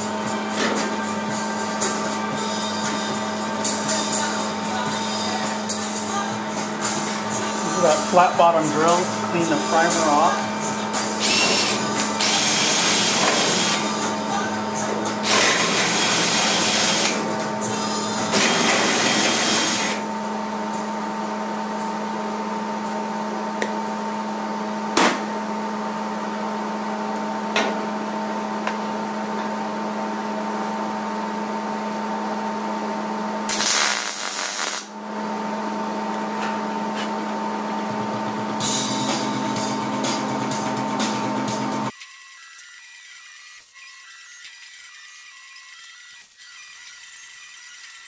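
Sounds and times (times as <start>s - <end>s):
drill drilling into sheet steel: 11.2s - 13.8s, 15.2s - 17.2s, 18.3s - 20.0s, 33.5s - 34.9s, 41.9s - 48.0s.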